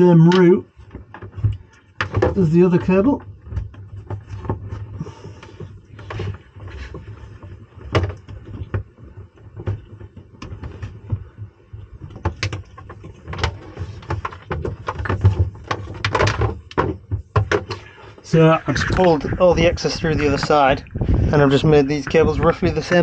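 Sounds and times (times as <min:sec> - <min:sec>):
cable scraping and rustling: 0:00.0 - 0:23.0.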